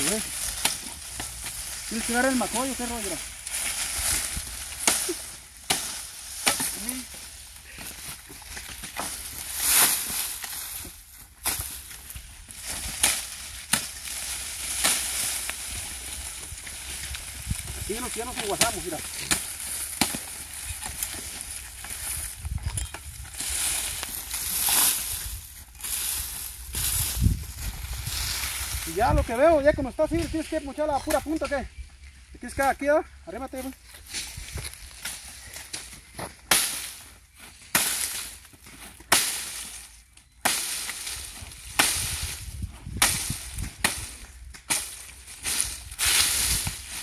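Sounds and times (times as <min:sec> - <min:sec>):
dry sugarcane rustling and crackling: 0:00.0 - 0:47.0
knife chopping sugarcane: 0:04.8 - 0:07.0, 0:18.2 - 0:21.3.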